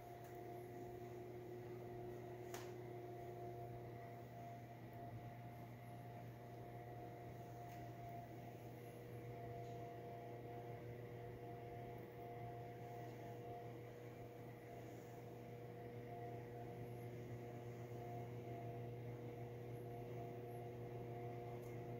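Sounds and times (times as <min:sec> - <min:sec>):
low steady hum: 0:00.0 - 0:21.9.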